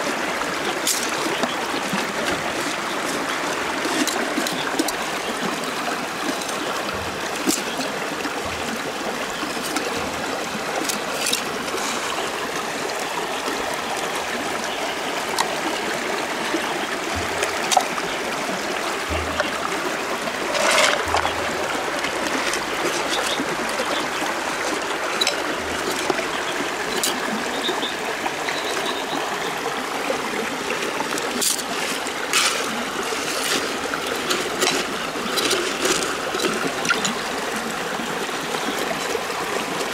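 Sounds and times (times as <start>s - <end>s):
river water trickling over gravel: 0.0s - 39.9s
knife scraping clam shell: 20.5s - 26.2s, 31.2s - 37.2s.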